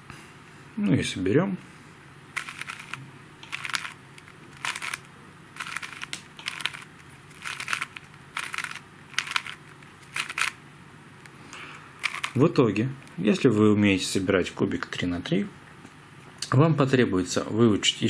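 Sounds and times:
puzzle cube layers clicking: 2.4s - 10.6s, 12.0s - 12.4s.

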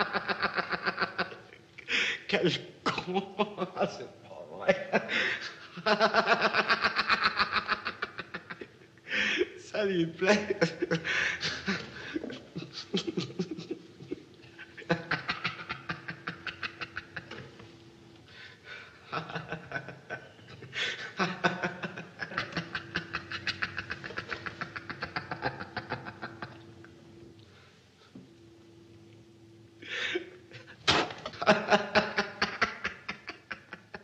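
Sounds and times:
person laughing breathily: 5.0s - 5.8s, 9.0s - 9.6s, 10.8s - 13.8s, 20.6s - 21.2s, 29.8s - 30.8s.

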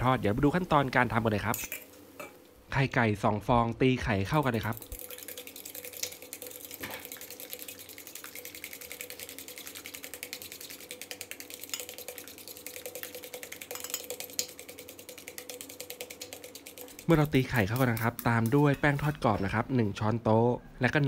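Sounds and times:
fork clicking against metal bowl: 13.6s - 18.9s.

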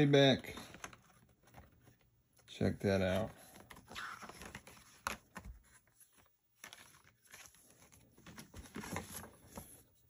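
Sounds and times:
paper rustling: 0.3s - 10.0s.

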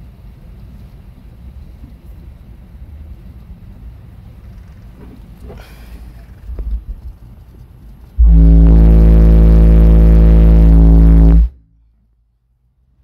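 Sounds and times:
distorted subwoofer test tone: 8.2s - 11.7s.

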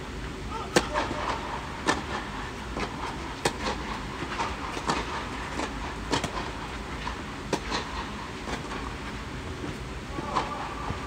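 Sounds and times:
racket hitting tennis ball: 0.7s - 2.2s, 2.8s - 8.7s.

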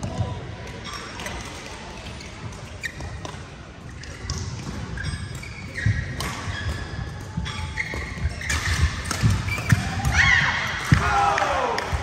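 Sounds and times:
shoes squeaking on floor: 2.0s - 10.0s
rackets hitting shuttlecock: 2.8s - 11.2s.

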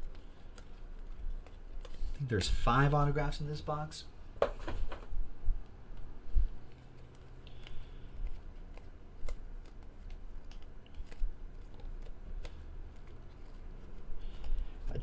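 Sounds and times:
cards clicking as flipped: 6.7s - 14.7s.

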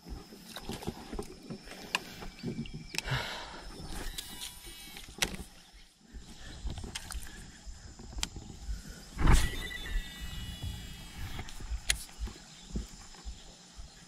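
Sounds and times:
fishing reel buzz: 8.8s - 12.2s.

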